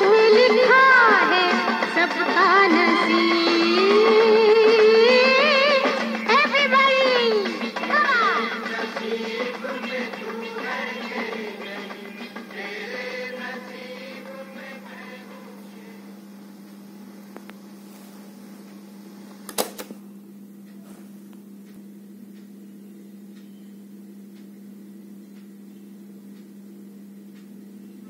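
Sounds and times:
song playing: 0:00.0 - 0:16.0
speaker low hum: 0:00.0 - 0:28.0
tape hiss: 0:00.0 - 0:28.0
faint mechanical ticks: 0:20.6 - 0:22.6, 0:23.3 - 0:28.0.

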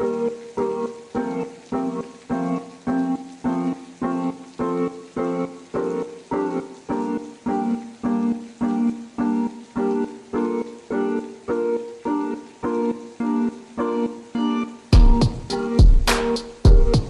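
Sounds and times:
piano chords: 0:00.0 - 0:17.0.

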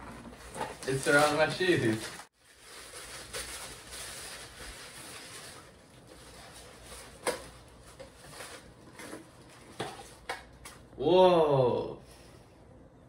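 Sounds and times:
tissue paper rustling: 0:00.9 - 0:09.0.

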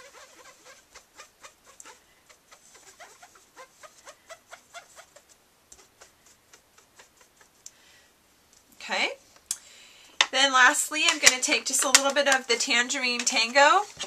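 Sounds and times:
sponge squeaking on paper: 0:00.0 - 0:07.6.

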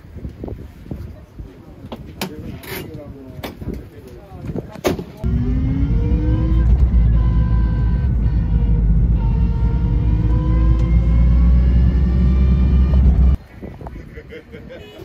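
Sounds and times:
vehicle engine accelerating: 0:05.2 - 0:13.4.

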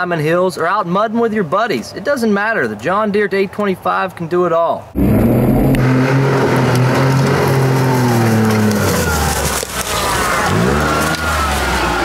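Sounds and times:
utility vehicle engine revving: 0:05.0 - 0:12.0.

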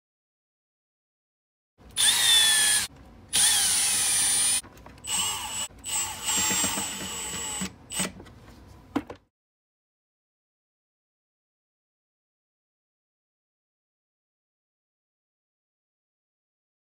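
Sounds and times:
cordless drill driving screws: 0:02.0 - 0:08.1.

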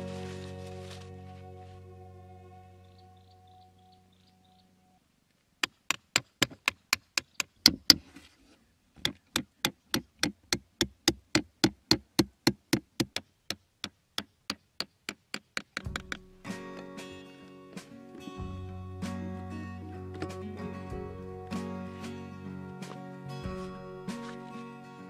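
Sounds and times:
hammer tapping nail through cardboard: 0:09.0 - 0:16.2.

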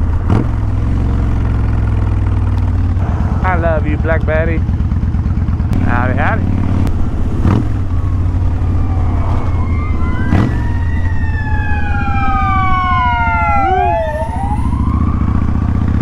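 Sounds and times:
motorcycle engine running: 0:00.0 - 0:16.0
ambulance siren passing: 0:07.0 - 0:16.0.

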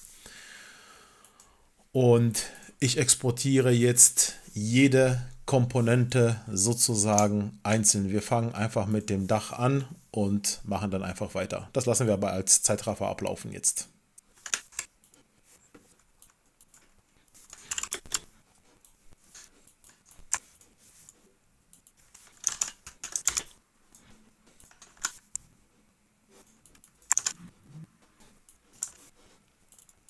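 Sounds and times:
keyboard typing: 0:16.2 - 0:25.3, 0:26.6 - 0:27.5, 0:29.7 - 0:30.0.

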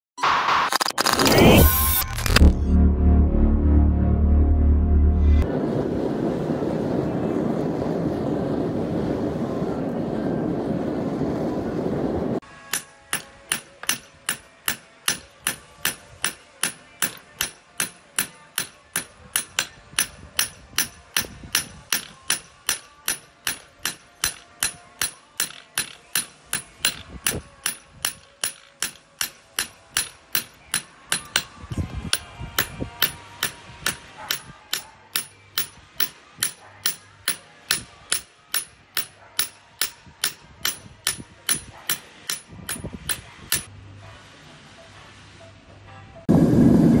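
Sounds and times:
hammer striking blade on anvil: 0:12.7 - 0:43.7.

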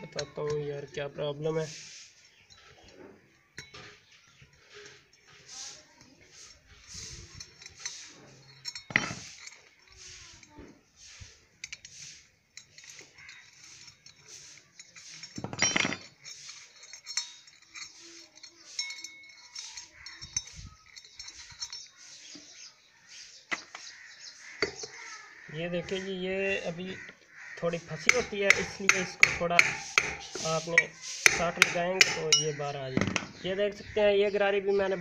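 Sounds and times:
spanner clinking on metal: 0:00.0 - 0:01.2, 0:02.4 - 0:10.7, 0:11.5 - 0:22.5, 0:27.7 - 0:33.8
metal clatter: 0:06.0 - 0:10.6, 0:11.6 - 0:22.0
sharp metal knock: 0:28.1 - 0:30.4.

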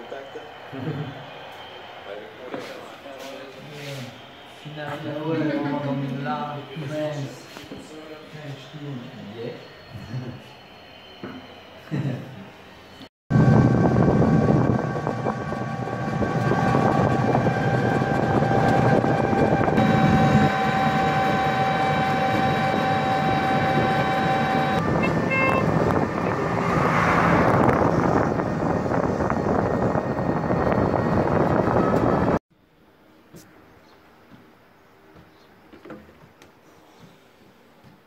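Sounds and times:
whining tones: 0:04.1 - 0:32.4
motor tricycle engine drone: 0:13.3 - 0:32.4.

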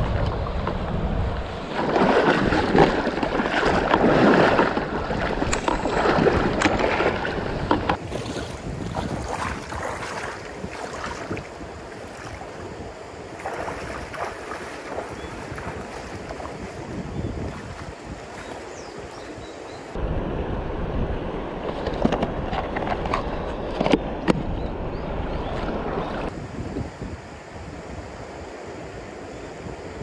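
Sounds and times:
stream water rushing: 0:00.0 - 0:20.1.

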